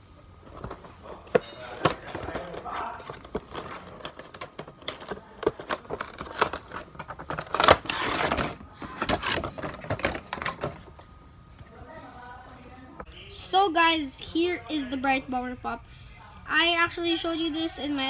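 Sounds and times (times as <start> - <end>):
plastic wrapping crinkling: 1.0 - 10.5.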